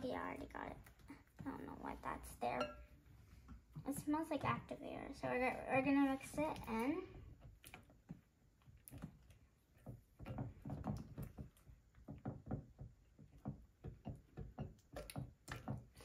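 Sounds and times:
spatula stirring slime: 0:00.0 - 0:16.0
spatula tapping glass bowl: 0:02.6 - 0:02.8.

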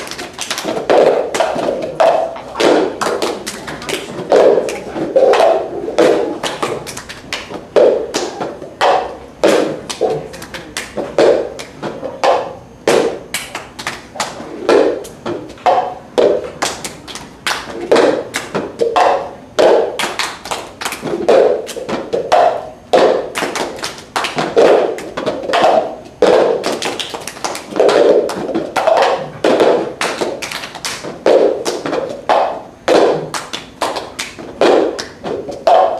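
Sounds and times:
hand claps: 0:00.0 - 0:35.9
plastic cups knocking on floor: 0:00.0 - 0:35.9.

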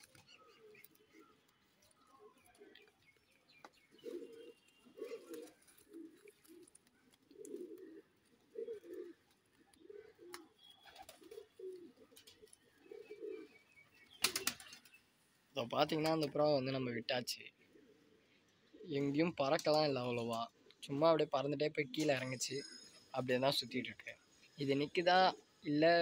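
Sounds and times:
pigeons cooing: 0:00.0 - 0:14.8, 0:17.6 - 0:19.2.

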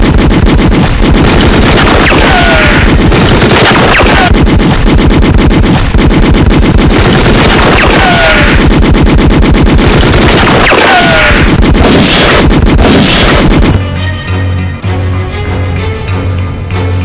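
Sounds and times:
rapid automatic rifle fire: 0:00.0 - 0:13.8
falling ricochet whines: 0:00.6 - 0:06.3.

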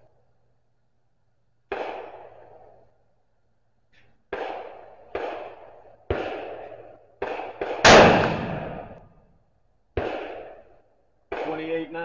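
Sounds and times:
gunshots echoing: 0:01.7 - 0:02.7, 0:04.3 - 0:09.2, 0:10.0 - 0:12.0.

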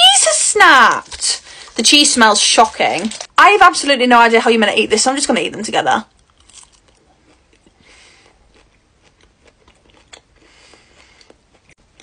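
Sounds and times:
faint chewing: 0:06.1 - 0:12.0.

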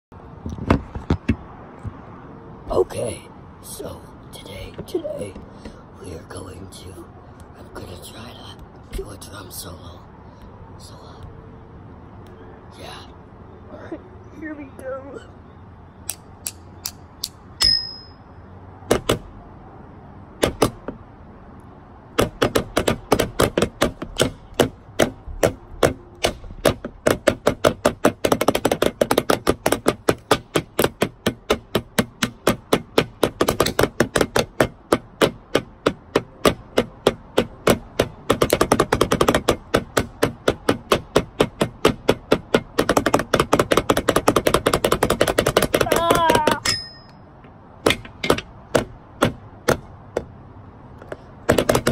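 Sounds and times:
sticks drumming on plastic disc: 0:22.1 - 0:46.7, 0:51.0 - 0:51.9.

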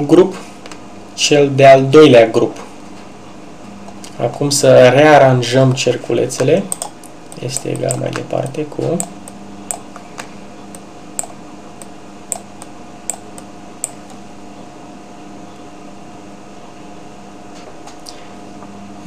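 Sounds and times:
steady hum: 0:00.0 - 0:19.0
computer mouse clicking: 0:06.7 - 0:08.3, 0:10.7 - 0:14.2.

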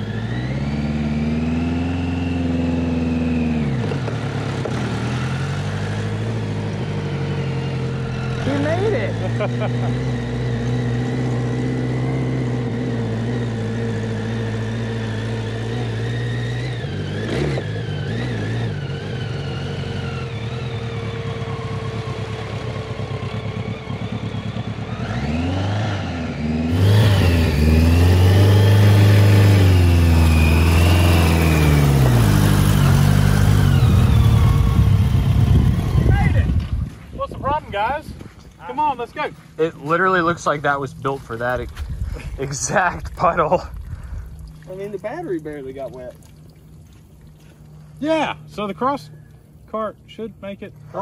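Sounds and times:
kart engine revving: 0:00.0 - 0:36.8
water splashing: 0:42.7 - 0:49.6.

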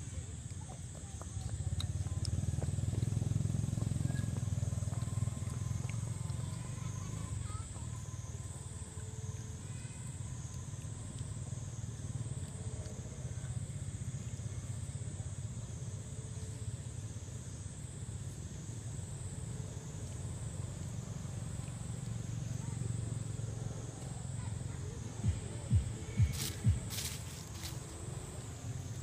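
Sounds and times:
high insect chorus: 0:00.0 - 0:29.0
low rumble: 0:25.2 - 0:29.0.

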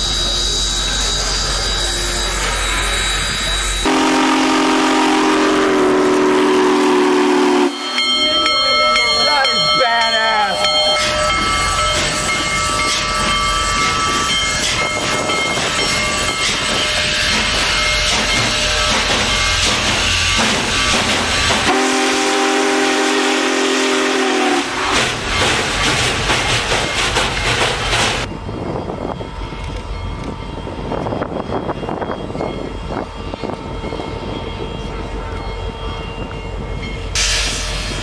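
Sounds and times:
steam locomotive running past: 0:00.0 - 0:38.0
steam whistle chord: 0:03.8 - 0:08.2, 0:21.6 - 0:24.8.

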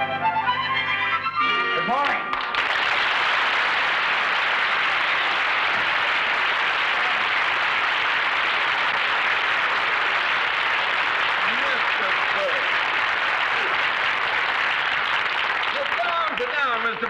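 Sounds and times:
audience applauding: 0:01.9 - 0:17.0.

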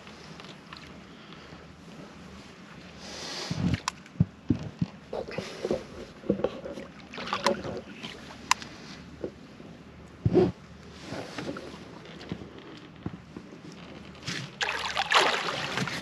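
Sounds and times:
rustling and scraping: 0:03.5 - 0:09.5, 0:10.2 - 0:14.6.

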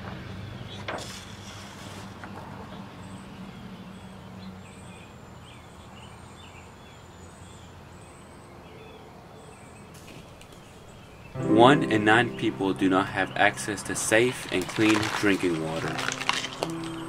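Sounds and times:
small birds chirping: 0:02.7 - 0:11.4.

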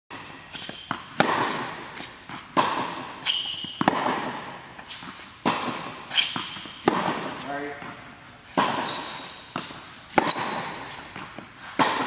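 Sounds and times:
tennis balls bouncing on court: 0:00.1 - 0:12.0
tennis balls hit by racket: 0:00.1 - 0:12.0
sneaker squeaking: 0:00.2 - 0:12.0.

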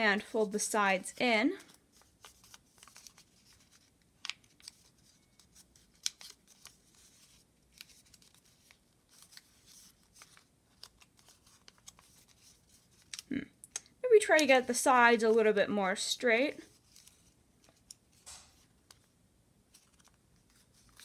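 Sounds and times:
paper being folded and creased: 0:00.4 - 0:13.3, 0:16.6 - 0:19.1, 0:19.7 - 0:21.0.

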